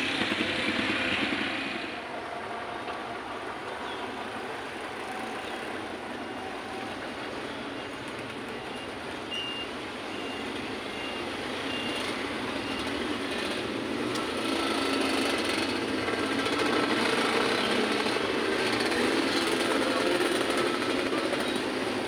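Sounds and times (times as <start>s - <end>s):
motorcycles passing: 0.0s - 22.0s
street traffic: 0.0s - 22.0s
faint high beep: 8.6s - 13.0s.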